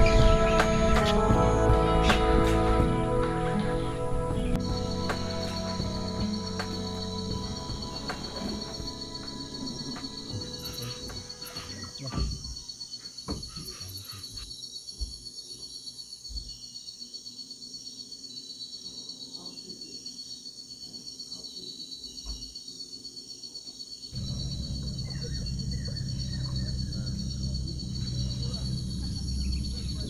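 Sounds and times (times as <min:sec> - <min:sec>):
low-pitched background sound: 0:00.0 - 0:12.0, 0:24.2 - 0:30.0
high insect buzzing: 0:00.0 - 0:18.4, 0:22.2 - 0:30.0
insects trilling: 0:00.0 - 0:30.0
soft low knocks: 0:24.2 - 0:30.0.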